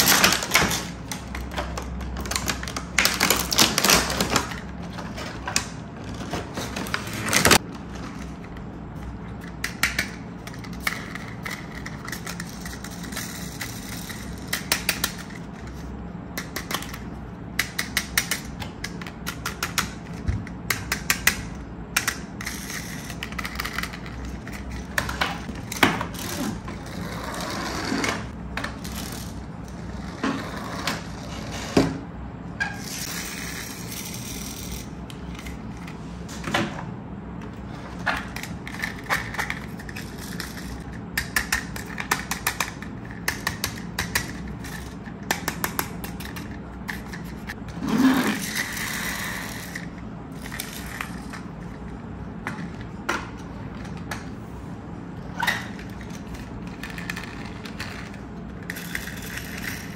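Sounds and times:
plastic track pieces clicking: 0:38.2 - 0:51.4.

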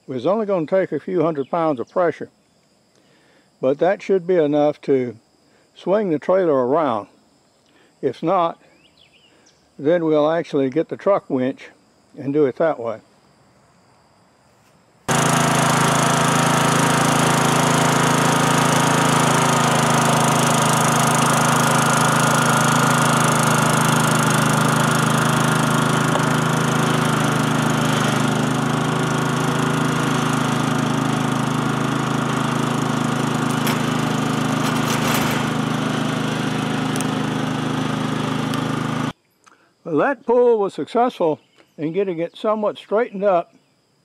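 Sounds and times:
riding lawn mower engine running: 0:15.1 - 0:39.2.

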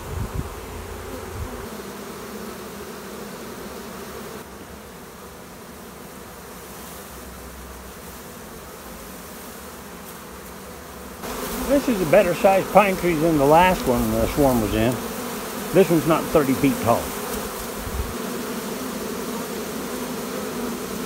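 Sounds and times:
bees buzzing: 0:00.0 - 0:21.0.

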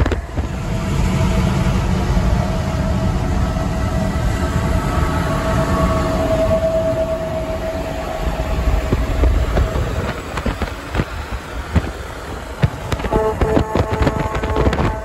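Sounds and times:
truck engine and road rumble: 0:00.0 - 0:15.0
truck air horn blasts: 0:12.8 - 0:15.0.

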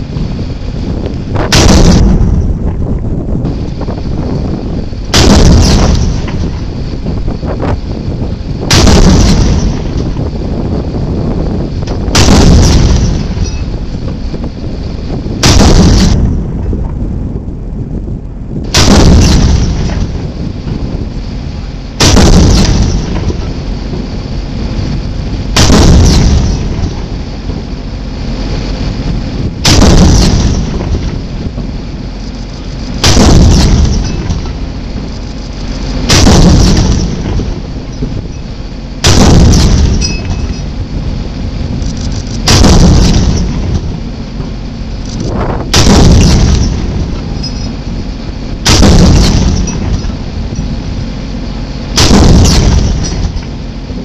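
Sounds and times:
steady background noise: 0:00.0 - 0:54.0
cannon shots booming: 0:01.3 - 0:02.9, 0:03.5 - 0:07.6, 0:08.6 - 0:11.2, 0:11.9 - 0:13.8, 0:15.3 - 0:17.0, 0:18.6 - 0:20.9, 0:22.0 - 0:24.0, 0:25.4 - 0:27.5, 0:29.5 - 0:31.6, 0:33.0 - 0:35.1, 0:36.0 - 0:38.2, 0:39.0 - 0:40.9, 0:42.4 - 0:44.6, 0:45.3 - 0:48.0, 0:48.6 - 0:50.5, 0:51.9 - 0:53.4.

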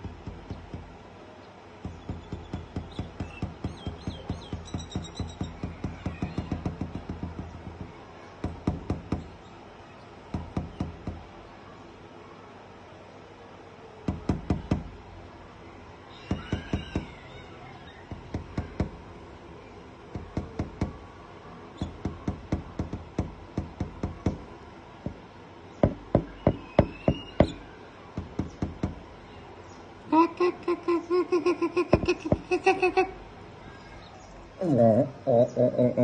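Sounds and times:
bird tapping on glass: 0:00.0 - 0:01.0, 0:01.8 - 0:09.3, 0:10.3 - 0:11.3, 0:14.1 - 0:15.0, 0:16.3 - 0:17.2, 0:18.0 - 0:19.1, 0:20.1 - 0:21.0, 0:21.8 - 0:25.2, 0:25.8 - 0:29.1
bird chattering: 0:01.9 - 0:06.7, 0:25.8 - 0:29.0.

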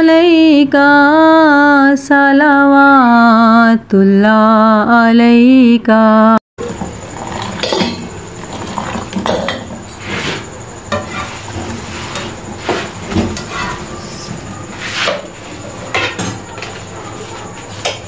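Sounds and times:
metal tongs clinking on griddle: 0:07.5 - 0:08.1.

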